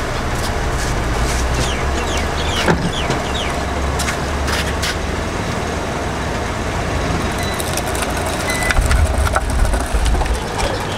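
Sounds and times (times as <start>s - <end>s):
car engine rumble: 0.0s - 10.9s.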